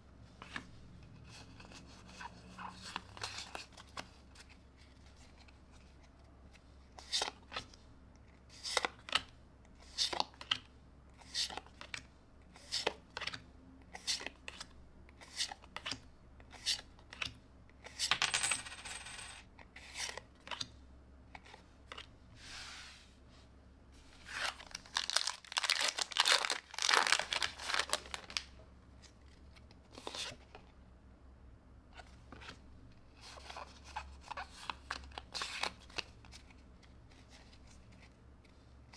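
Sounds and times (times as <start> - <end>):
cards rustling: 24.2 - 30.6.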